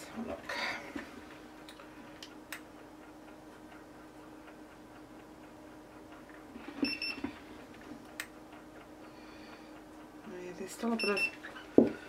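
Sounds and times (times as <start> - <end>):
thermometer click and beep: 6.8 - 7.2, 11.0 - 11.4.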